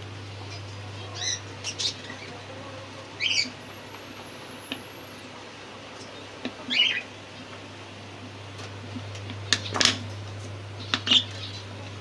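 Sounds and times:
steady low hum: 0.0s - 12.0s
bird squawk: 0.5s - 2.4s, 3.2s - 3.6s, 6.7s - 7.1s, 10.8s - 11.8s.

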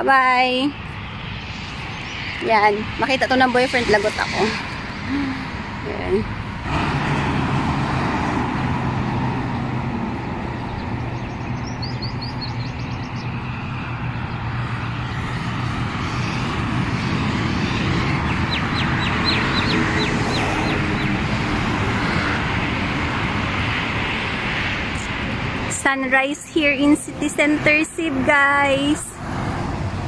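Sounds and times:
city traffic: 0.0s - 30.0s
small birds chirping: 10.6s - 15.4s, 17.6s - 21.2s.

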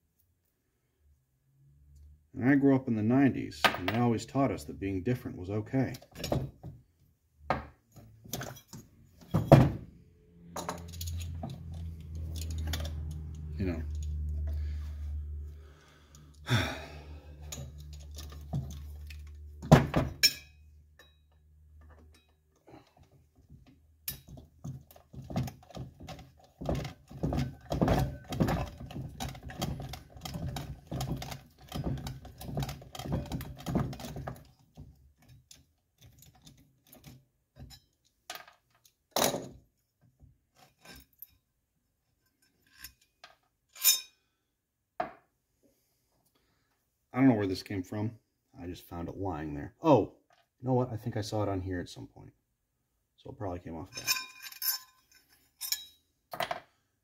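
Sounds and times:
metal tool knocks and clatter: 7.4s - 9.9s, 10.5s - 13.1s, 19.6s - 22.4s, 23.5s - 39.6s.

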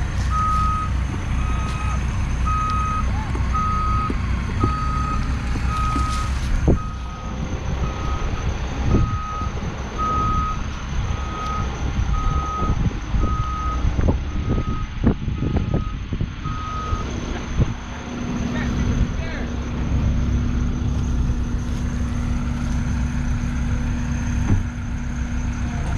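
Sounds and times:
forklift engine running: 0.0s - 25.9s
back-up alarm beeping: 0.3s - 17.1s.

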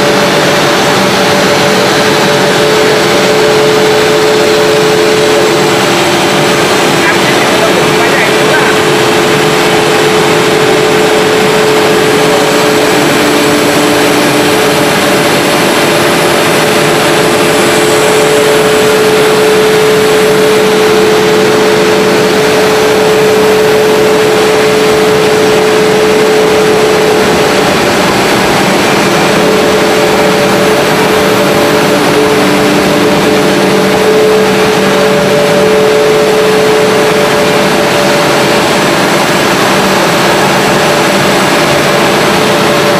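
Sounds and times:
low hum: 0.0s - 42.9s
machine hum: 0.0s - 42.9s
steady whining tones: 0.0s - 42.9s.

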